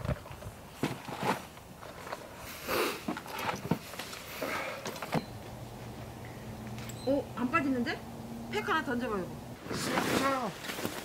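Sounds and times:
camping gear knocks and clicks: 0:03.0 - 0:05.6
low steady hum: 0:03.1 - 0:11.0
rustling: 0:09.6 - 0:11.0.

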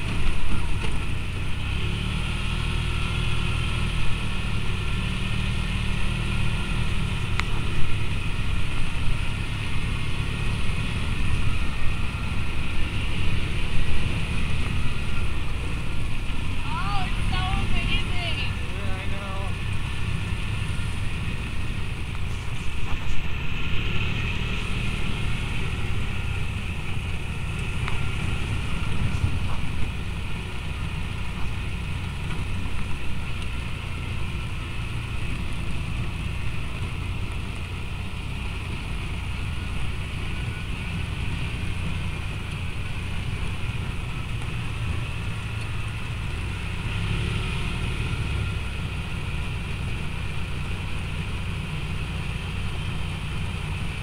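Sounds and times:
utility vehicle engine rumble: 0:00.0 - 0:54.0.

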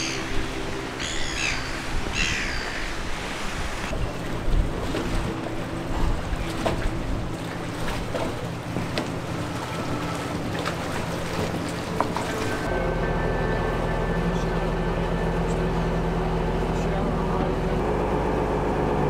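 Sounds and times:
water: 0:00.0 - 0:19.0
wind: 0:00.0 - 0:19.0
ferry engine idling: 0:03.9 - 0:19.0.

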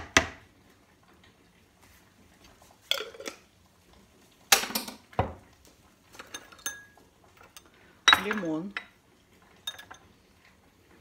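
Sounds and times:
kitchenware clinking on stone countertop: 0:02.8 - 0:03.5, 0:04.5 - 0:05.5, 0:06.1 - 0:10.2.

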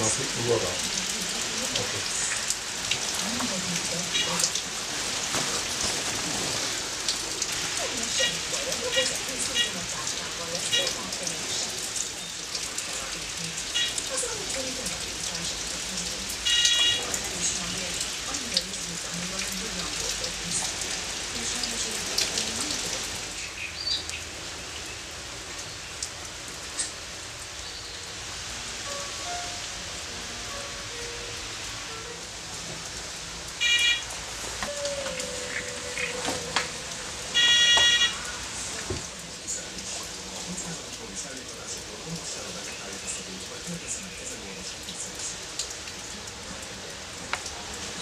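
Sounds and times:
rain pattering: 0:00.0 - 0:48.0
electronic alarm beep: 0:37.4 - 0:38.2.

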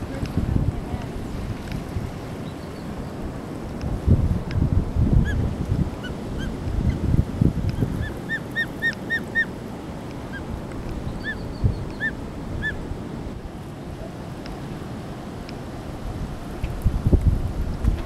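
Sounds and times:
wind gusts on microphone: 0:00.0 - 0:18.0
osprey chirping whistles: 0:07.8 - 0:09.5, 0:11.1 - 0:12.8.

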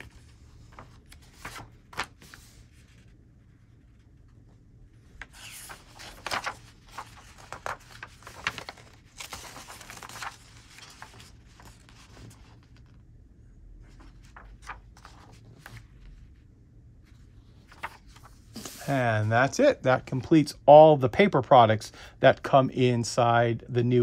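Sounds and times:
paper pages rustling: 0:00.0 - 0:03.2, 0:05.1 - 0:13.0, 0:13.8 - 0:16.2, 0:17.1 - 0:20.2.

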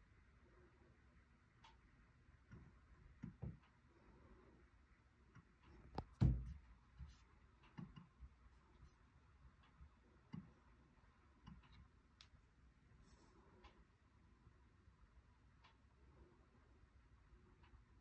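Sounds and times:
faint clicks and knocks: 0:01.5 - 0:14.0.

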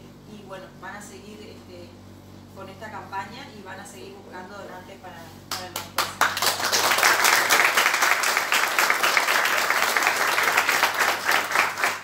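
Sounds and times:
people applauding: 0:06.0 - 0:12.0.

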